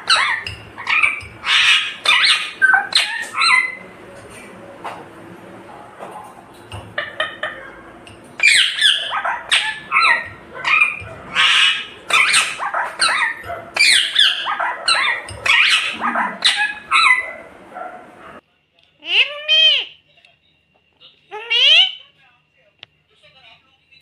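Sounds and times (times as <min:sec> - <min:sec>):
parakeet squawking: 0:00.0 - 0:03.9, 0:06.9 - 0:18.4, 0:19.0 - 0:20.0, 0:21.3 - 0:22.0.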